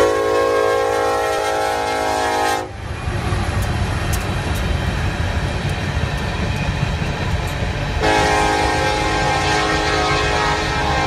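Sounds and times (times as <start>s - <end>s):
train horn blasts: 0.0s - 2.8s, 8.0s - 11.0s
freight train rumbling past: 0.0s - 11.0s.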